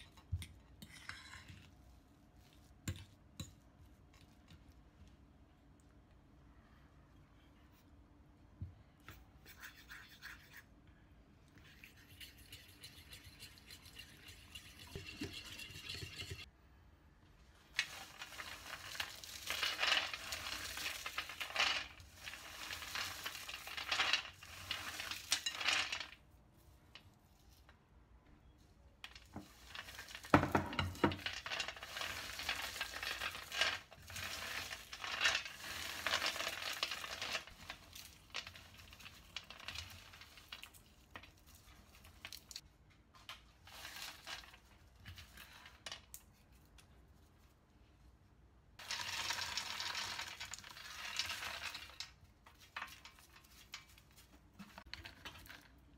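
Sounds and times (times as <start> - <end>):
peanuts rattling on metal tray: 17.7 - 26.2, 29.0 - 42.6, 43.6 - 46.1, 48.8 - 55.8.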